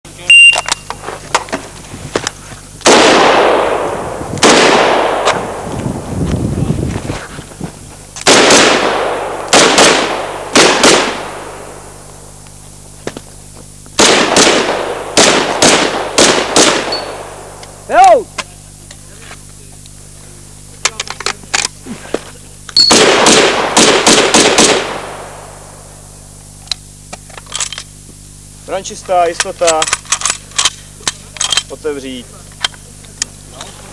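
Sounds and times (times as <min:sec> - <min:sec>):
rifle shots: 0:02.8 - 0:06.0, 0:08.2 - 0:12.4, 0:14.0 - 0:17.9, 0:22.8 - 0:26.0.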